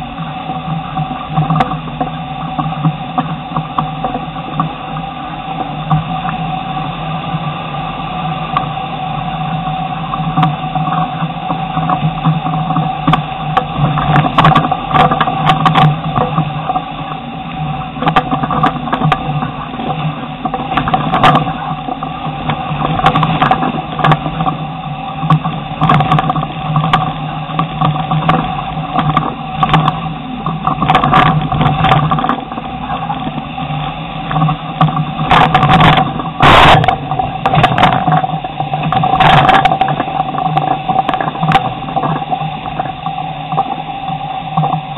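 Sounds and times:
off-road vehicle engine running: 0.0 - 44.9.

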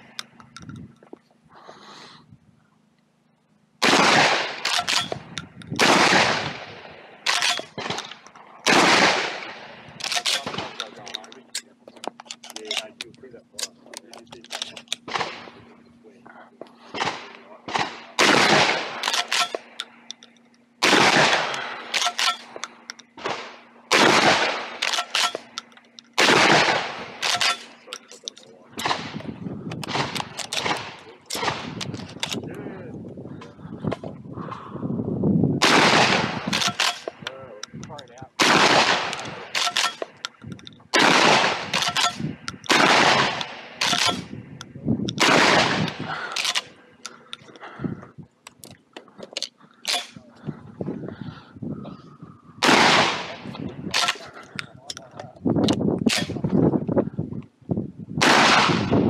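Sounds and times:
shotgun shots echoing: 3.8 - 11.4, 14.5 - 15.6, 16.9 - 20.0, 20.8 - 32.4, 35.6 - 40.3, 40.9 - 44.4, 45.2 - 46.8, 52.6 - 54.4, 56.0 - 56.4, 58.2 - 59.0
sharp clicks: 36.5 - 47.7.

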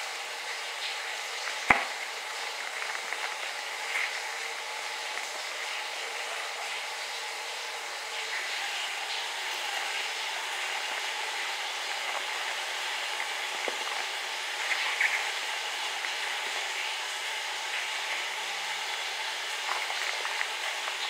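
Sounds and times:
steady hiss: 0.0 - 21.0
cornstarch rustling and crunching: 1.3 - 5.9, 9.2 - 21.0.

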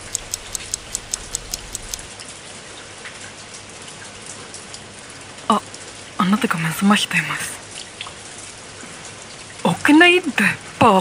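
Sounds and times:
rapid sharp ticks: 0.0 - 2.1
steady rain: 0.0 - 11.0.

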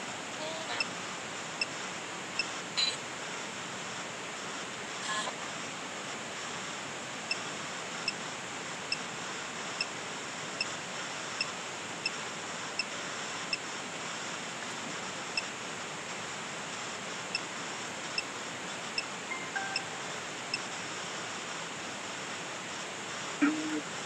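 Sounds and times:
short high beeps: 19.3 - 20.1.

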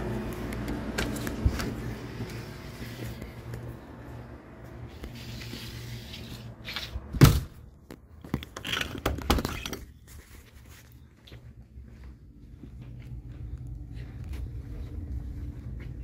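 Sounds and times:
loud thunk: 7.2 - 7.6.

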